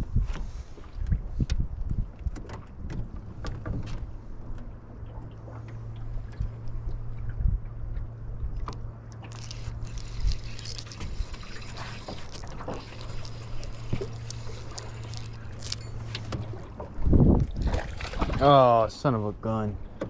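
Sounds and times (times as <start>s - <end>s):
water lapping against boat hull: 0.0s - 20.0s
steady low hum: 3.0s - 20.0s
fishing gear clicks and knocks: 8.7s - 16.5s.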